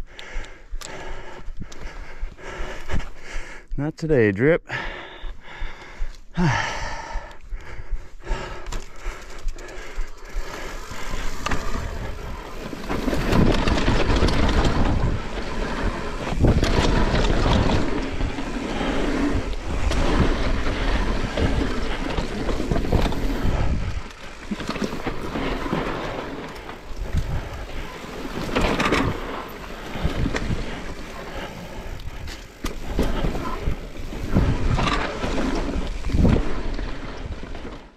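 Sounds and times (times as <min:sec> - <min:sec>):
bike tyres rolling over dirt: 0:05.9 - 0:37.9
bike knocks and rattles: 0:10.3 - 0:37.8
wind on microphone: 0:10.8 - 0:24.1, 0:26.8 - 0:27.9, 0:31.7 - 0:37.5.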